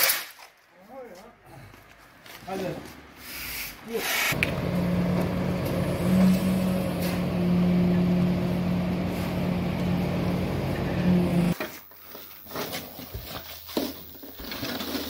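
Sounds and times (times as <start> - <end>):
concrete mixer pump engine hum: 4.3 - 11.6.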